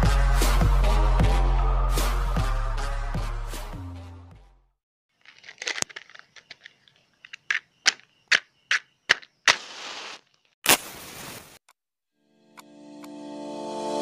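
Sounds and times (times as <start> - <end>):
short hissing scrapes: 9.5 - 11.6.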